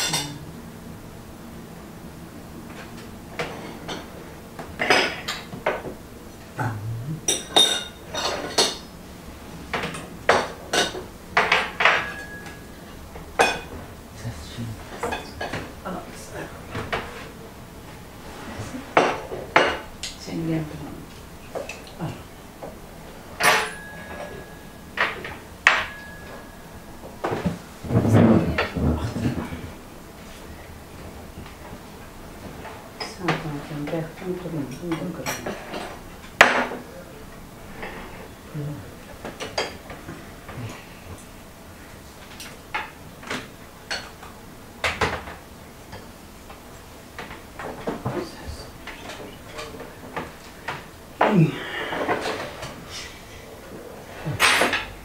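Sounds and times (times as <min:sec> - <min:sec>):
plates clattering: 0:00.0 - 0:00.5, 0:02.6 - 0:09.0, 0:09.6 - 0:13.9, 0:14.7 - 0:15.8, 0:16.4 - 0:17.4, 0:18.2 - 0:20.8, 0:22.6 - 0:29.8, 0:34.1 - 0:36.9, 0:39.0 - 0:41.3, 0:42.2 - 0:46.2, 0:47.1 - 0:53.2, 0:54.0 - 0:55.0
tableware clinking: 0:00.0 - 0:00.5, 0:04.8 - 0:05.9, 0:07.2 - 0:08.9, 0:09.7 - 0:13.8, 0:18.9 - 0:20.2, 0:23.4 - 0:28.8, 0:39.2 - 0:39.9, 0:54.3 - 0:55.0.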